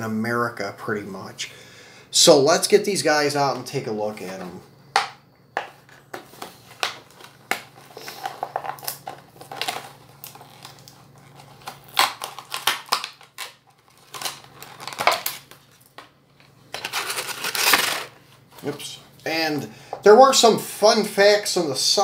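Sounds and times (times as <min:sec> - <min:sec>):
cardboard and plastic tearing: 0:06.2 - 0:16.0, 0:16.7 - 0:18.2.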